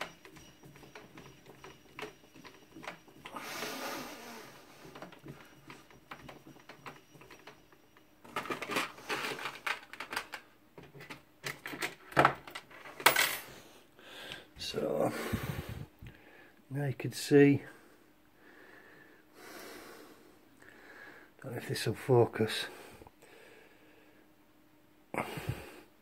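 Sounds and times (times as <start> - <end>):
metal tools clinking and rattling: 0.0 - 13.6.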